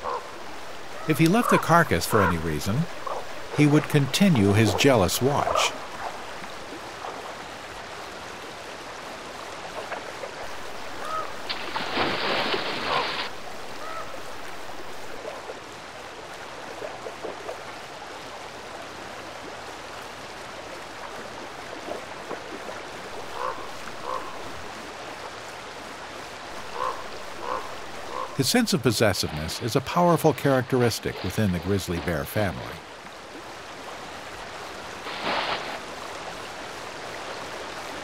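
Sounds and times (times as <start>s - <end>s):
ravens calling: 0.0s - 6.1s, 10.9s - 11.5s, 12.8s - 14.3s, 23.2s - 24.5s, 26.6s - 29.6s
river water rushing over rocks: 0.0s - 38.0s
bear splashing through water: 9.6s - 14.6s, 34.9s - 38.0s.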